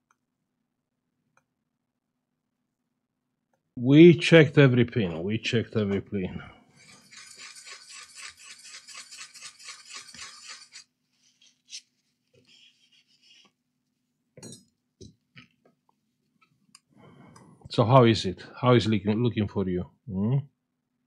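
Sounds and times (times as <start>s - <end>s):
brush scrubbing circuit board: 6.8s - 13.5s.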